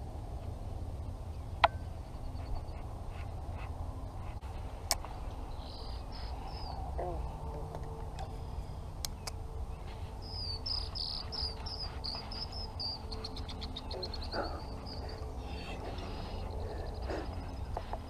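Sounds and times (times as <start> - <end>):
low rumble of wind: 0.0 - 18.0
small bird singing trill: 8.2 - 18.0.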